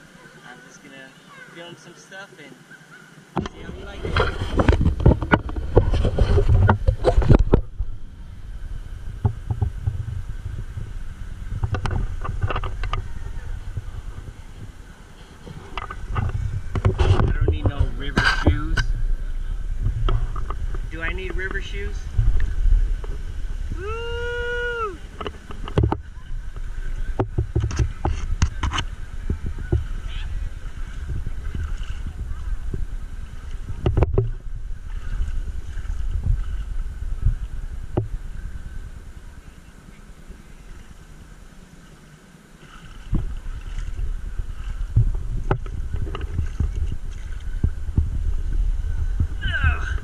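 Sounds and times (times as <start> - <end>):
feet wading through shallow water: 2.7 - 50.0
person calling out: 49.4 - 50.0.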